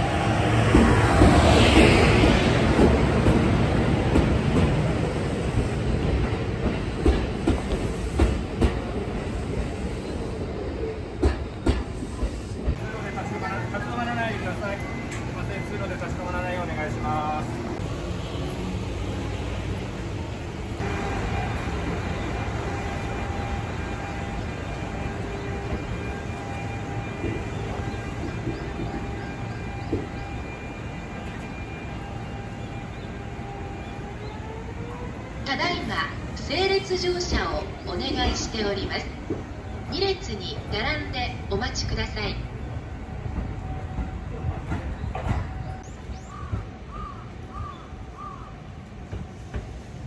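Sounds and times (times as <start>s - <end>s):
electric train hum: 0.0s - 50.0s
train wheel knocks: 11.2s - 12.0s
bird calling: 44.9s - 48.7s.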